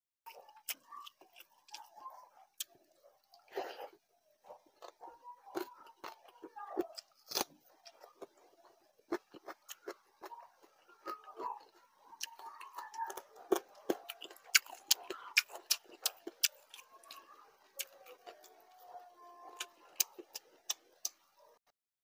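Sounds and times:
crunchy chewing: 0:00.3 - 0:21.6.

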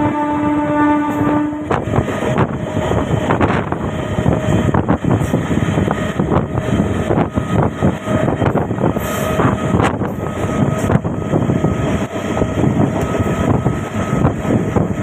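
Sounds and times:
train horn: 0:00.0 - 0:04.4
train rumble and rattle: 0:00.0 - 0:15.0
wind on microphone: 0:00.0 - 0:15.0.

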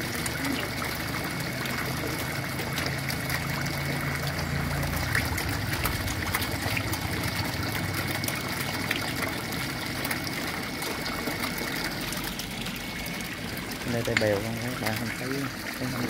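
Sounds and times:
water trickling into a tank: 0:00.0 - 0:16.0
low hum: 0:01.6 - 0:14.2.

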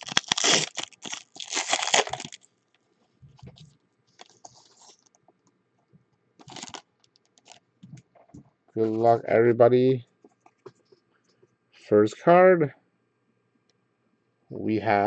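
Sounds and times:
cards rustling: 0:00.0 - 0:02.4, 0:04.2 - 0:05.1, 0:06.4 - 0:07.6
foil wrapper tearing and crinkling: 0:00.0 - 0:02.5, 0:04.2 - 0:05.1, 0:06.4 - 0:07.6.

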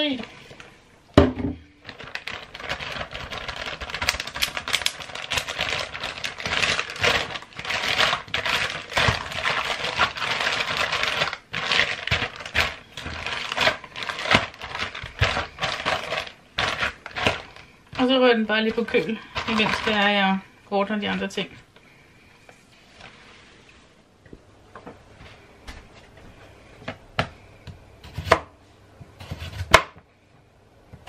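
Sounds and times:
plastic bag crinkling: 0:01.6 - 0:20.4.

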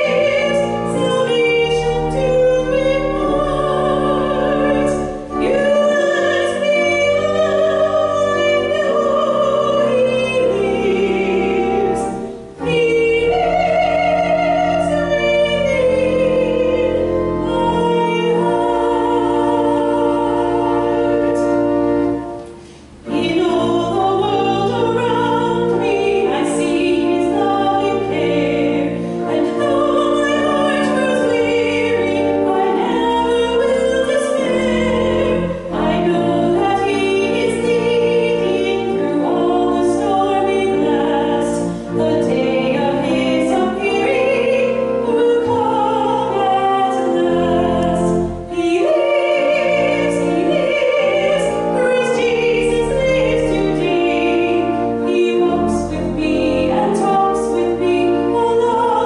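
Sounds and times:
woman singing a hymn: 0:00.0 - 0:22.4, 0:23.0 - 0:59.0
pipe organ: 0:00.0 - 0:59.0.

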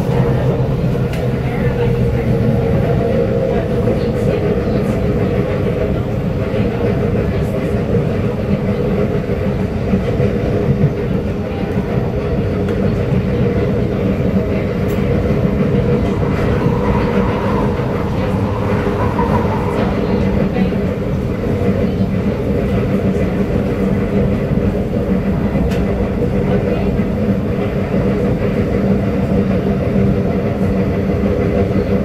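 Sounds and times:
train drive hum: 0:00.0 - 0:32.0
train passing by: 0:00.0 - 0:32.0
train wheels on rails: 0:00.0 - 0:32.0.

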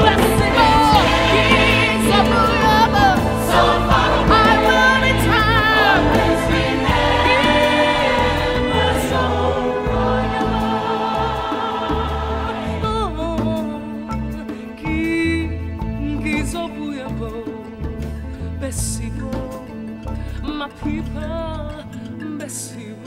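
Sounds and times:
choir singing: 0:00.0 - 0:13.7
low musical accompaniment: 0:00.0 - 0:23.0.

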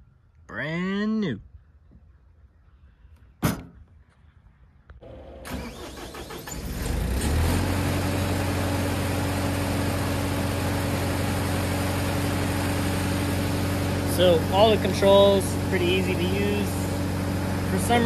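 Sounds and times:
diesel engine running with low hum: 0:04.9 - 0:18.0
diesel engine cranking and starting: 0:05.0 - 0:18.0.

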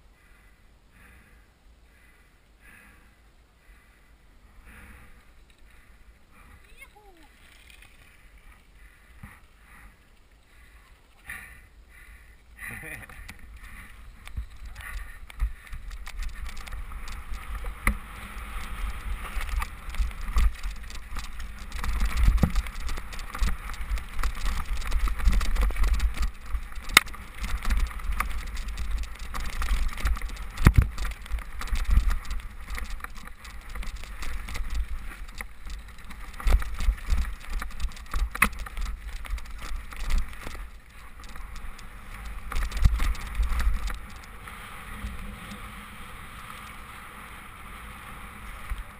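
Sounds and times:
mountain bike rumbling on rough trail: 0:04.6 - 0:48.9
bike knocking and clattering: 0:19.2 - 0:44.3.

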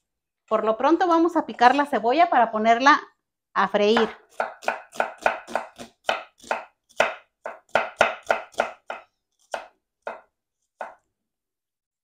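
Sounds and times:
knife chopping on wooden board: 0:04.0 - 0:11.0.

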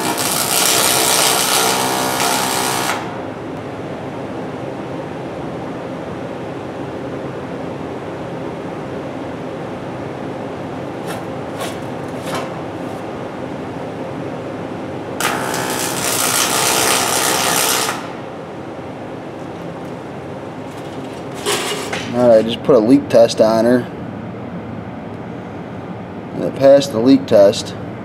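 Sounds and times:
welding arc buzzing: 0:00.0 - 0:03.3, 0:15.2 - 0:18.6, 0:19.5 - 0:22.2
background hum: 0:00.0 - 0:28.0.

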